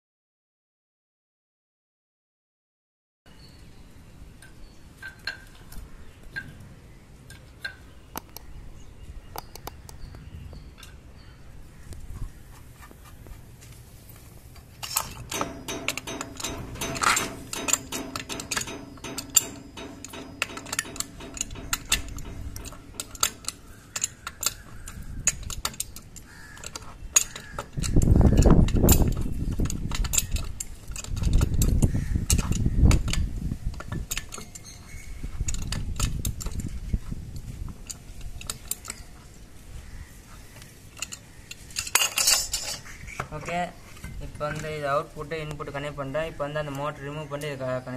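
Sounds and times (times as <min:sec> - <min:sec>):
hand tools clinking on pipe fittings: 0:14.6 - 0:36.8, 0:40.9 - 0:42.9
pipe wrench scraping: 0:14.8 - 0:36.7.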